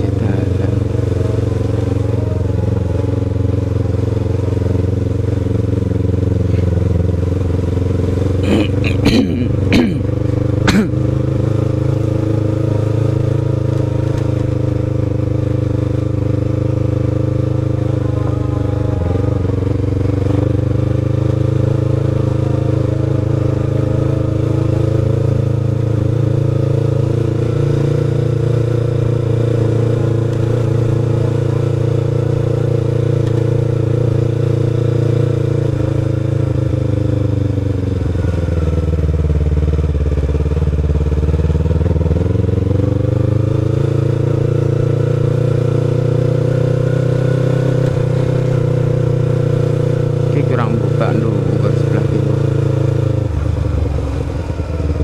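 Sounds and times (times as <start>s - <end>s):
motorcycle engine cruising: 0.0s - 55.0s.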